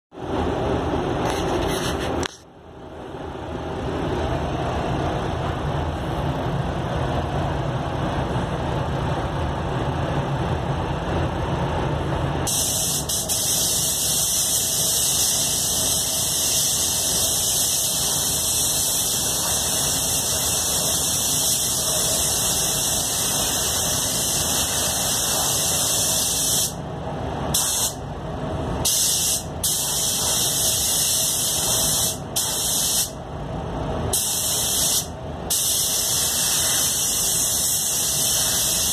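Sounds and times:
steady low rumble: 0:00.2 - 0:25.8
spray gun air hiss: 0:12.5 - 0:26.8, 0:27.5 - 0:28.0, 0:28.8 - 0:33.2, 0:34.1 - 0:38.9.

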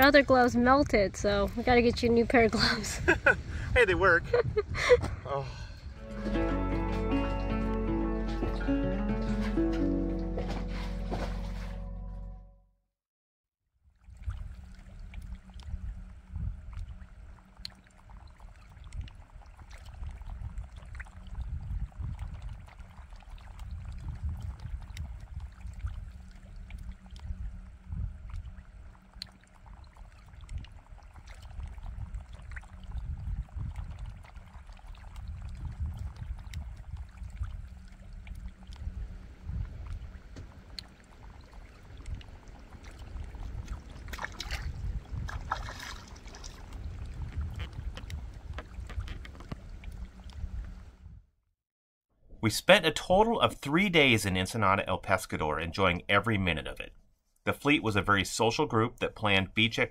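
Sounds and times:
gusty wind on microphone: 0:00.0 - 0:06.0, 0:15.6 - 0:16.9, 0:19.9 - 0:26.1, 0:27.2 - 0:28.3, 0:31.5 - 0:37.8, 0:38.7 - 0:51.3
faint water sounds: 0:00.0 - 0:06.3, 0:13.8 - 0:51.2, 0:52.4 - 0:59.9
small ticks: 0:16.7 - 0:19.8, 0:22.6 - 0:31.6, 0:34.5 - 0:38.9.

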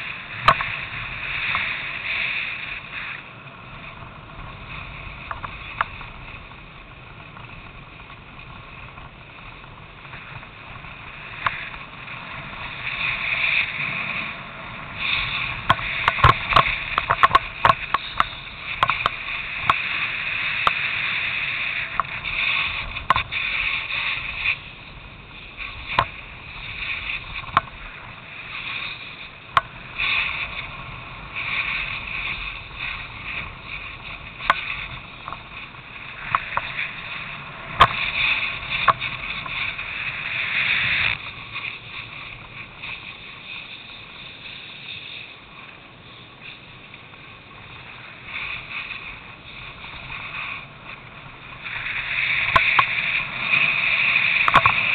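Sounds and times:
snowboard scraping over snow: 0:00.0 - 0:54.9
sharp clicks and knocks: 0:15.6 - 0:19.8, 0:54.4 - 0:54.8.

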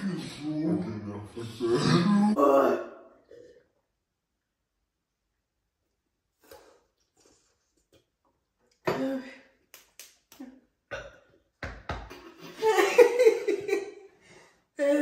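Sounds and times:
person exclaiming and groaning: 0:01.6 - 0:03.0.

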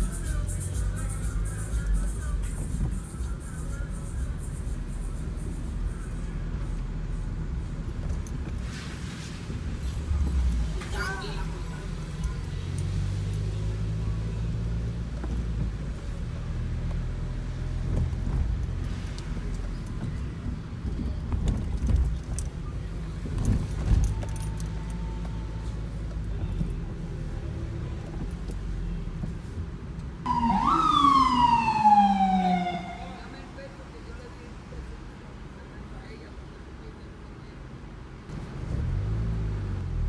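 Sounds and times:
car driving rumble: 0:00.0 - 0:40.0
emergency vehicle siren wailing: 0:30.2 - 0:33.6.

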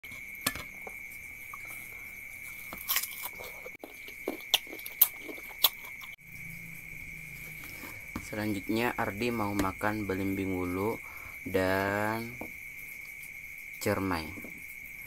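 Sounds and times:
biting and chewing mango: 0:00.9 - 0:06.2.

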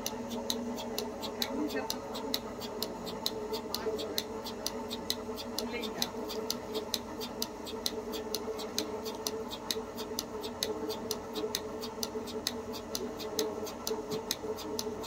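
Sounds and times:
milking machine pulsator clicking: 0:00.0 - 0:15.0
vacuum pump humming: 0:00.0 - 0:15.0.

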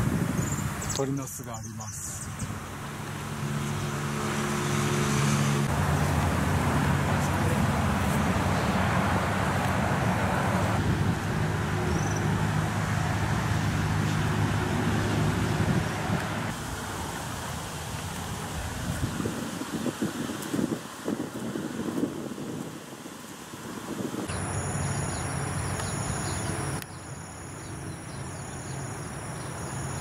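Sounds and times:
road noise: 0:00.0 - 0:30.0
vehicle engine hum: 0:02.2 - 0:18.6, 0:24.2 - 0:30.0.

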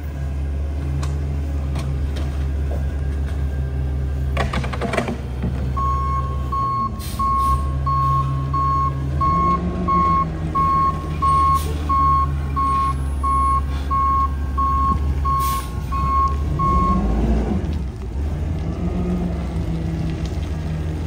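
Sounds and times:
truck engine running: 0:00.0 - 0:21.0
truck backup alarm beeping: 0:05.7 - 0:17.2.

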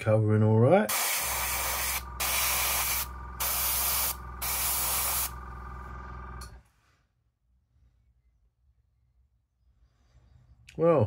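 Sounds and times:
airbrush spraying hiss: 0:00.9 - 0:05.4
steady low hum: 0:00.9 - 0:06.6.

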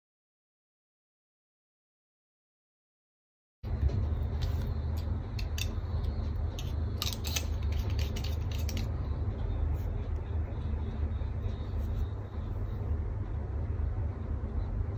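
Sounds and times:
low background rumble: 0:03.6 - 0:14.9.

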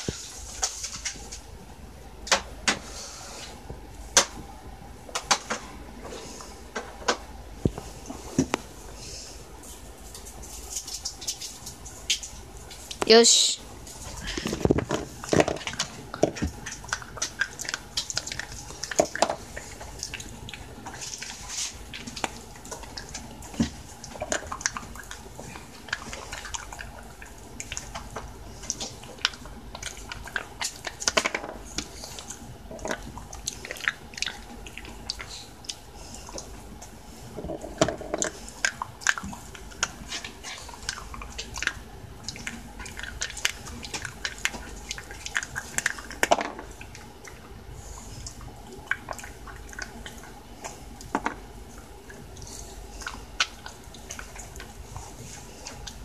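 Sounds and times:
dog chewing a chew: 0:13.9 - 0:56.0.

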